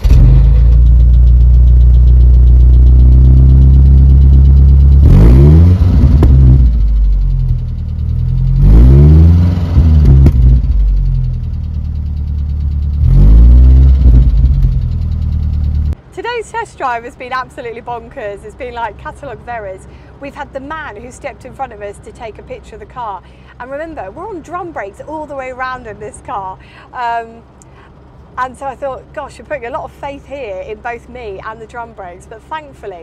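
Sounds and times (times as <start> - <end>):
car engine idling and revving: 0.0 - 16.1, 27.4 - 29.9.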